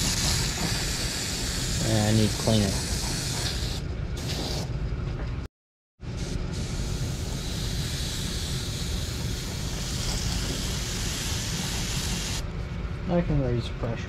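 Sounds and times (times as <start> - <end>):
airbrush hissing: 0.0 - 4.7, 6.2 - 12.4.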